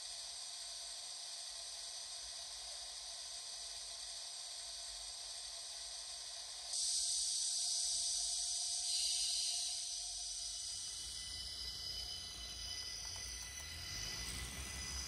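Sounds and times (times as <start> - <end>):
faint steady tones: 4.8 - 15.0.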